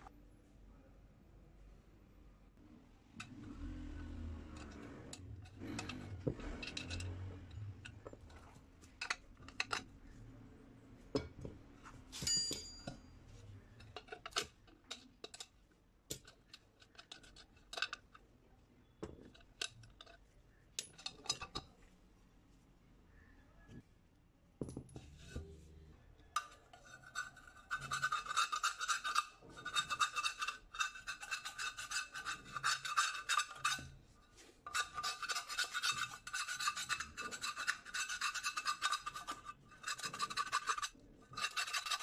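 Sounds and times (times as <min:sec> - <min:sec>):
ringing metal clank: 0:12.2 - 0:13.1.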